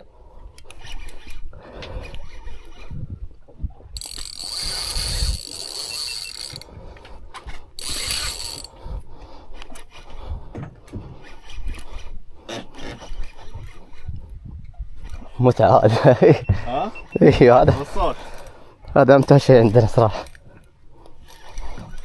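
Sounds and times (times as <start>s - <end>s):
fishing reel drag buzzing: 0.6s - 2.9s, 4.0s - 6.8s, 7.8s - 9.0s, 21.2s - 22.0s
fishing reel clicks: 4.0s - 6.7s, 7.8s - 8.8s.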